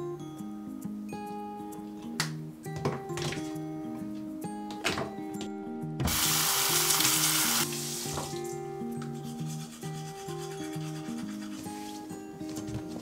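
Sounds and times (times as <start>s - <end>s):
background music: 0.0s - 13.0s
tap water running into sink: 6.1s - 8.3s.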